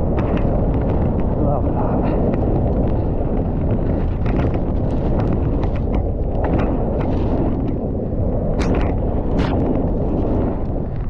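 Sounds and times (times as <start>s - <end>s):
bike clattering over bumps: 0.0s - 7.8s
wind buffeting microphone: 0.0s - 11.0s.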